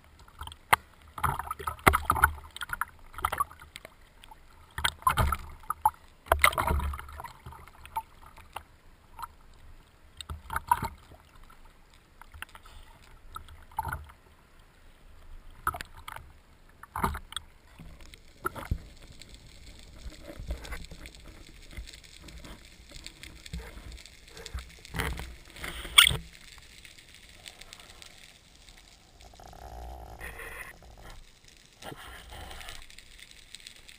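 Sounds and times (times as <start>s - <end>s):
water splashing against camera: 0.2s - 9.4s, 10.1s - 14.2s, 15.5s - 33.9s
underwater gurgling and bubbling: 16.9s - 33.6s.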